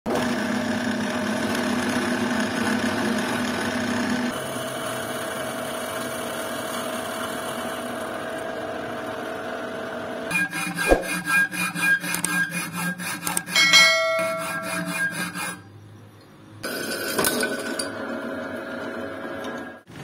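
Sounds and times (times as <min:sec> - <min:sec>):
end mill cutting aluminium: 0:10.3 - 0:15.7.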